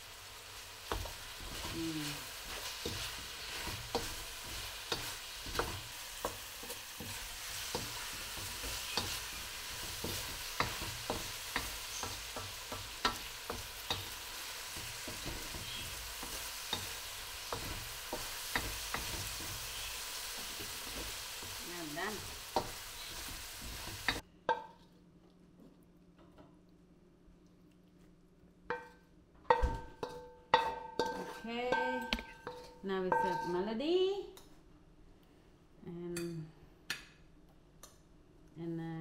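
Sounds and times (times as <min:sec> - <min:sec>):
chicken sizzling in a wok: 0:00.0 - 0:24.6
wooden spatula scraping wok: 0:00.6 - 0:24.8, 0:29.9 - 0:33.6.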